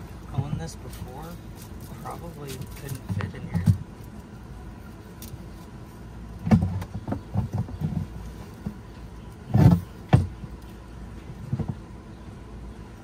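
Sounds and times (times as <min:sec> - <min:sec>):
low steady rumble: 0:00.0 - 0:13.0
knocks and clunks of hoses: 0:02.5 - 0:04.0, 0:06.4 - 0:10.6, 0:11.2 - 0:11.9.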